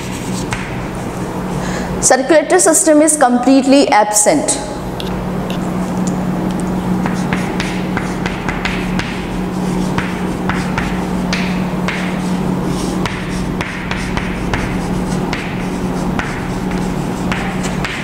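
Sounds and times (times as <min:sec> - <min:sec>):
chalk writing on a chalkboard: 0:00.0 - 0:00.8, 0:07.0 - 0:18.0
steady low hum: 0:00.0 - 0:18.0.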